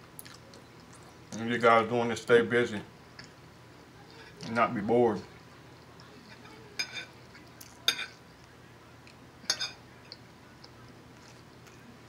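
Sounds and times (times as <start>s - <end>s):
fork clinking on plate: 6.3s - 7.2s, 7.8s - 8.2s, 9.5s - 10.2s.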